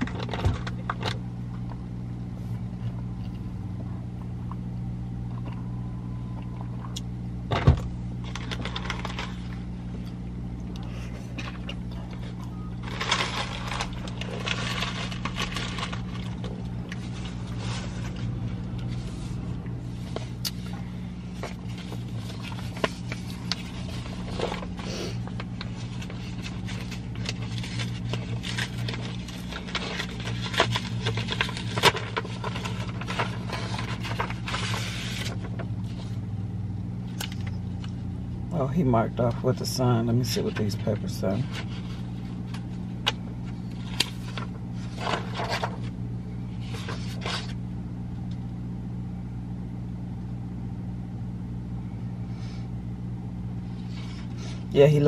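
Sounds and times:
car idling inside cabin: 0:00.0 - 0:48.6
rustling: 0:12.8 - 0:20.7, 0:21.3 - 0:36.2.

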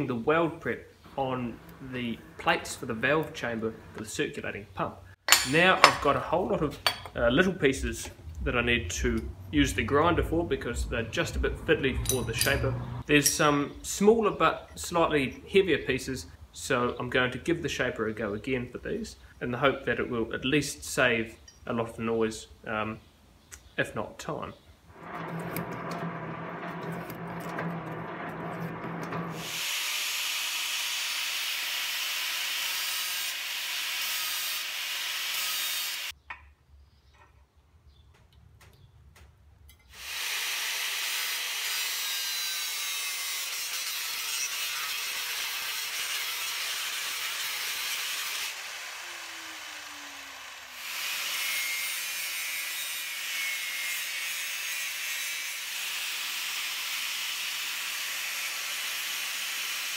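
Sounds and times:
angle grinder grinding steel: 0:10.3 - 0:13.8, 0:24.9 - 0:33.3, 0:41.7 - 0:56.9.

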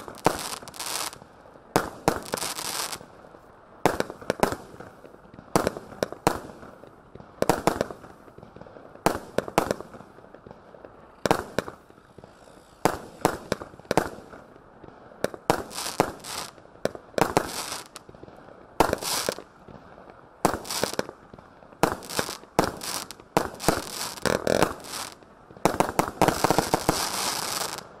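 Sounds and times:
dense firework crackling: 0:00.0 - 0:28.0.

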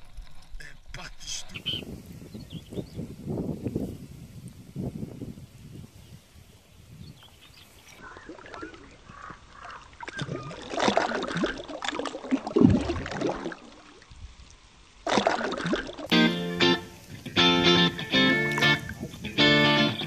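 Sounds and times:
water splashing and sloshing: 0:07.8 - 0:16.1
outro music: 0:16.1 - 0:20.0.

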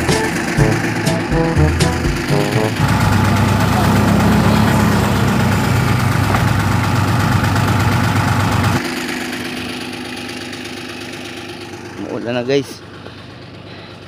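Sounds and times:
diesel engine revving and idling: 0:00.0 - 0:13.8.

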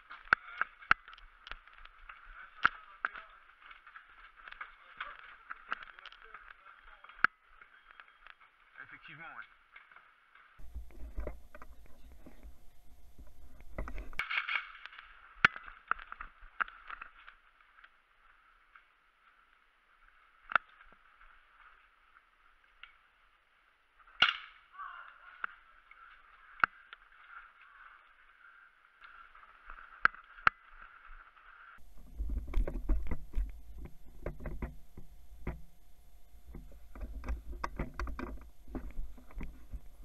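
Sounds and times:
low rumble: 0:10.6 - 0:14.2, 0:31.8 - 0:40.0
steady hiss: 0:10.6 - 0:15.4.

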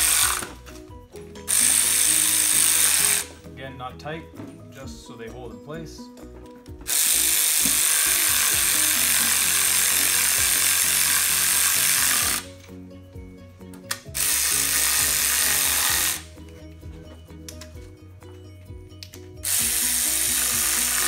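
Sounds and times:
air ratchet hissing: 0:00.0 - 0:00.6, 0:01.5 - 0:03.3, 0:06.9 - 0:12.5, 0:13.9 - 0:16.3, 0:19.4 - 0:21.0.

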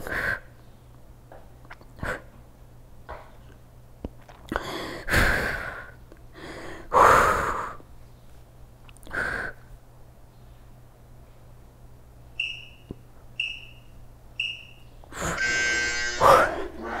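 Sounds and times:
woman breathing hard: 0:04.5 - 0:07.8, 0:15.1 - 0:15.4.

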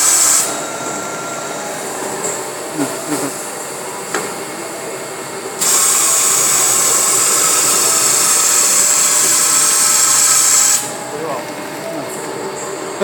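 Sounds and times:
loud high-pitched hiss: 0:00.0 - 0:00.6, 0:05.6 - 0:11.0
tube cutting machine running: 0:00.0 - 0:13.0.

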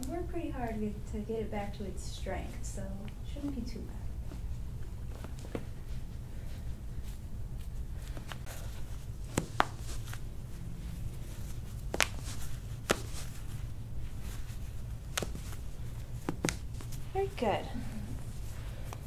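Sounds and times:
hands handling paper tissue: 0:04.2 - 0:19.0.

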